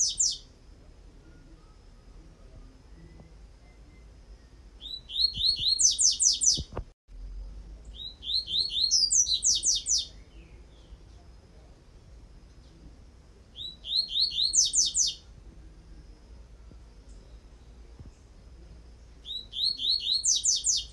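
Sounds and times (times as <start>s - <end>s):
bird whistling song: 0.0s - 0.5s, 1.2s - 6.7s, 7.9s - 11.0s, 13.6s - 15.3s, 19.2s - 20.9s.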